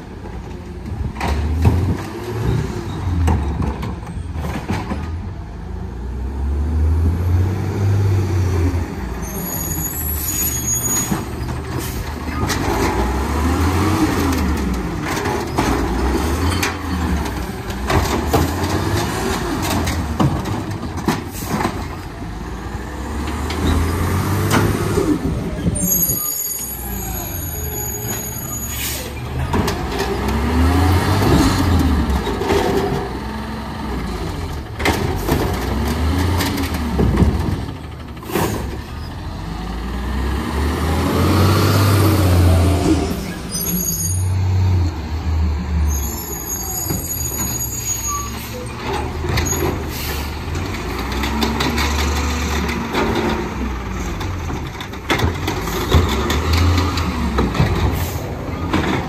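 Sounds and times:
garbage truck engine revving: 0:11.1 - 0:26.0, 0:29.2 - 0:46.6, 0:48.8 - 0:59.0
air brakes hissing: 0:25.8 - 0:29.2, 0:46.0 - 0:48.7, 0:49.8 - 0:50.4.

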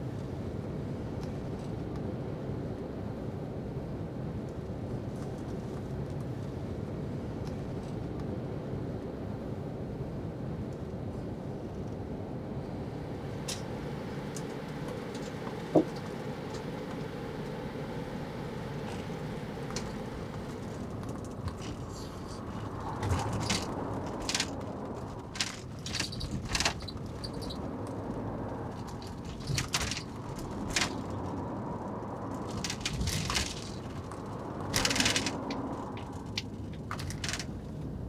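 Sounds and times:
bus road and engine noise: 0:00.0 - 0:38.0
small clicks and rattles: 0:18.8 - 0:38.0.

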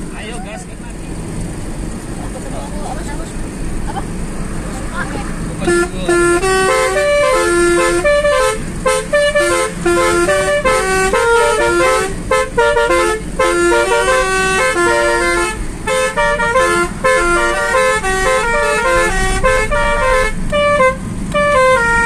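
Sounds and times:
melodica tune: 0:05.6 - 0:22.0
musical car air horn: 0:05.6 - 0:22.0.

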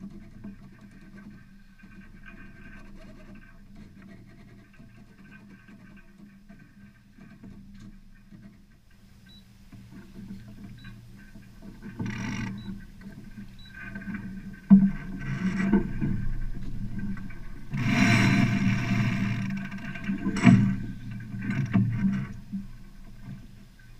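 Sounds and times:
wind and water rushing: 0:14.7 - 0:23.9.

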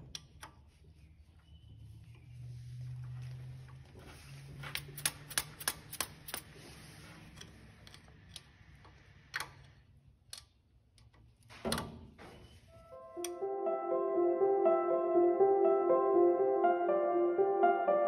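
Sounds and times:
socket ratchet wrench clicking: 0:05.0 - 0:06.5.

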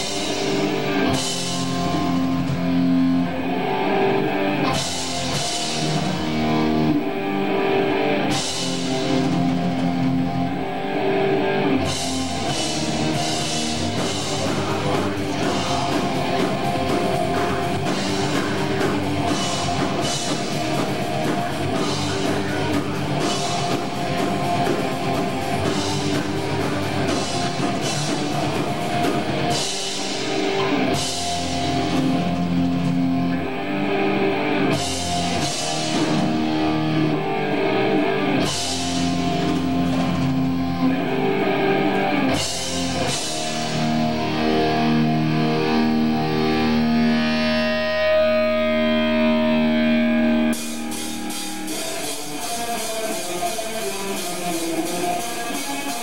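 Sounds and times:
fast drumming: 0:00.0 - 0:02.9, 0:11.8 - 0:33.2, 0:34.7 - 0:37.2, 0:41.7 - 0:47.4
distorted electric guitars: 0:00.0 - 0:56.0.

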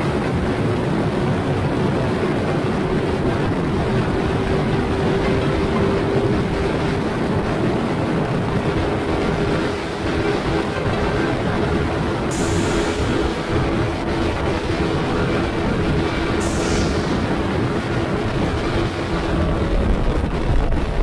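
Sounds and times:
scooter engine running: 0:00.0 - 0:21.0
wind buffeting microphone: 0:00.0 - 0:21.0.

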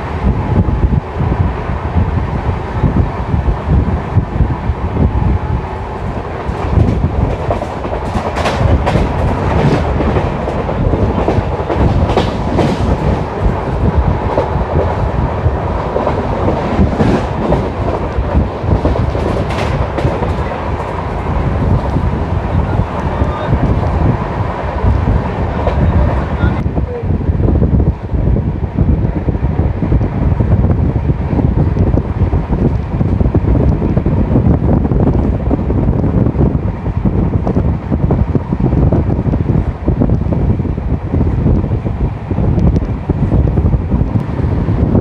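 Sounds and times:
train rumble from on board: 0:00.0 - 0:45.0
wheel clatter over rail joints: 0:06.0 - 0:26.6.

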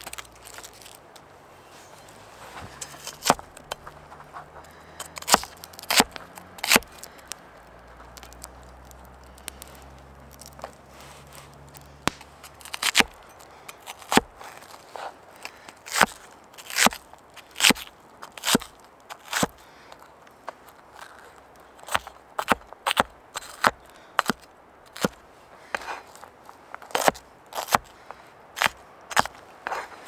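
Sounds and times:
axe chopping on cutting board: 0:05.1 - 0:06.9.

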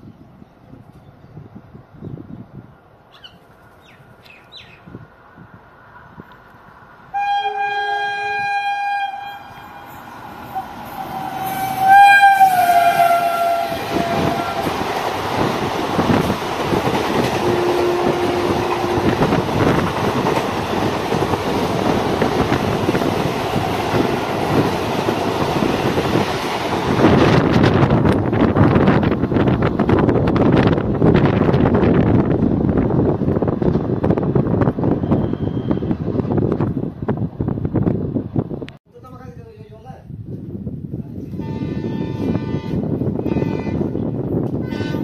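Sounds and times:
rush of passing train coaches: 0:00.0 - 0:38.8, 0:40.1 - 0:45.0
train horn blasts: 0:07.1 - 0:14.8, 0:17.4 - 0:19.4, 0:41.3 - 0:44.0, 0:44.6 - 0:45.0.

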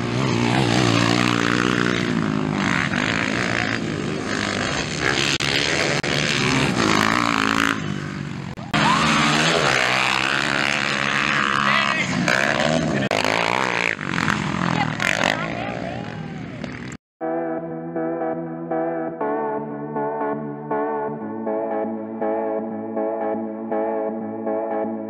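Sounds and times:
motocross bike engines revving: 0:00.0 - 0:17.0.

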